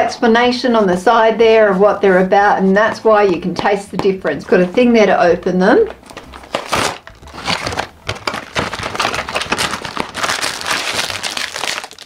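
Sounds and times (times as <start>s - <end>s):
plastic wrapper crinkling: 5.9s - 12.0s
cardboard box being opened: 6.0s - 11.8s.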